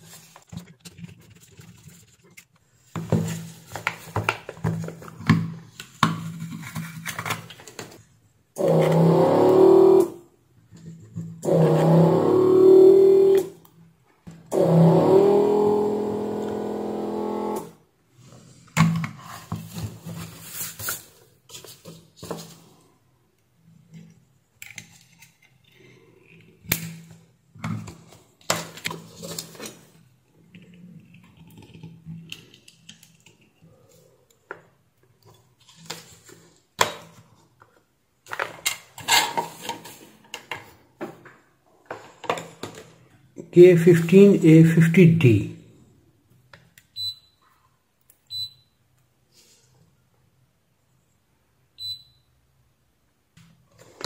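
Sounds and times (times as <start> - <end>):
desoldering pump buzzing: 11.4 - 13.5, 14.5 - 17.8.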